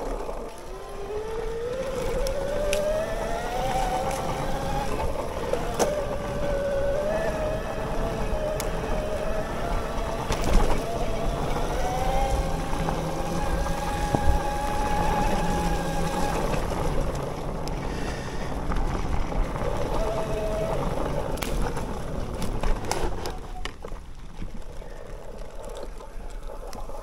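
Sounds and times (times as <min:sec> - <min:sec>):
electric motor whining: 0:00.0 - 0:17.7
trail noise: 0:00.0 - 0:27.0
wind noise: 0:00.0 - 0:27.0.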